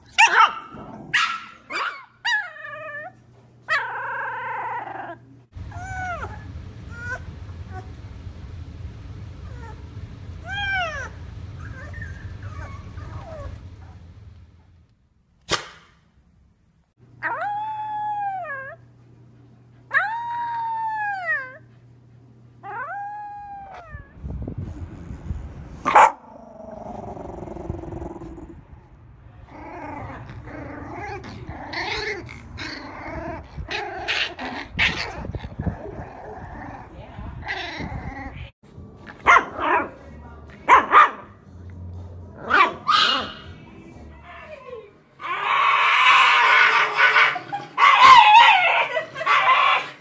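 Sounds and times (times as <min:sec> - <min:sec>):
puppies growling and yipping: 0:00.0 - 0:07.9, 0:09.5 - 0:14.2, 0:22.6 - 0:28.8, 0:29.4 - 0:40.0, 0:41.8 - 0:43.6, 0:45.2 - 0:50.0
dog growling: 0:03.7 - 0:06.4, 0:24.6 - 0:28.8, 0:29.4 - 0:40.0
dog howling: 0:45.2 - 0:50.0.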